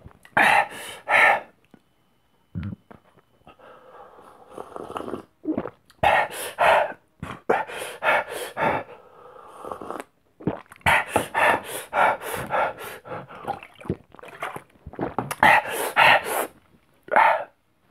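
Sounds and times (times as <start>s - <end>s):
man panting and gasping: 6.0s - 9.1s, 10.9s - 13.6s.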